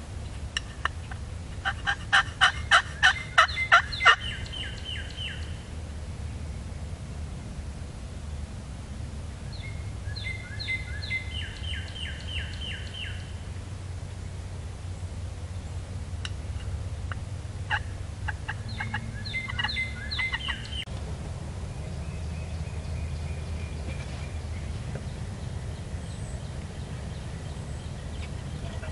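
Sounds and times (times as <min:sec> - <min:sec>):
low woodland rumble: 0:00.0 - 0:28.9
turkey gobbling: 0:00.8 - 0:05.5, 0:17.1 - 0:20.8.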